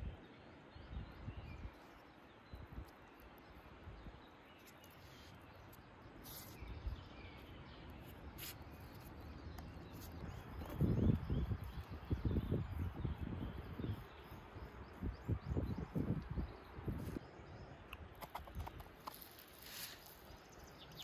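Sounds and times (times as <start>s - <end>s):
steady low hiss: 0.0s - 21.0s.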